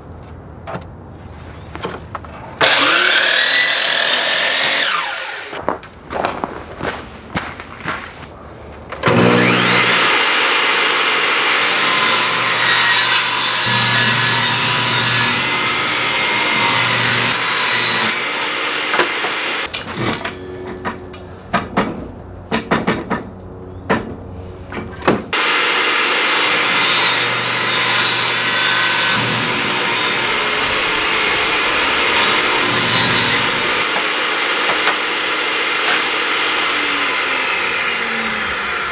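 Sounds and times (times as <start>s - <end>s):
table saw ripping wood: 2.6s - 5.6s, 9.0s - 20.2s, 25.4s - 38.9s.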